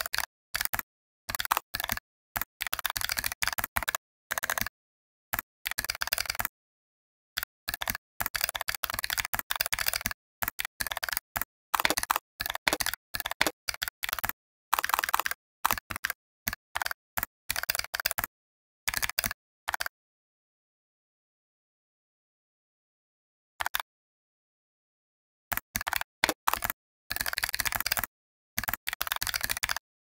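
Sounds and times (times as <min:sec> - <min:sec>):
fast typing on keyboard: 0:00.0 - 0:06.6, 0:07.4 - 0:18.3, 0:18.9 - 0:19.9, 0:25.5 - 0:30.0.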